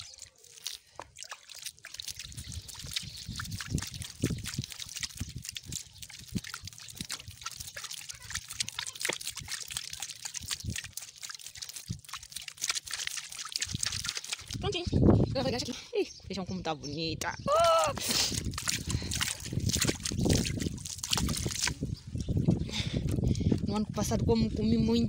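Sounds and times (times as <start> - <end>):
water splashing on soil: 0.0 - 15.0, 17.5 - 22.0.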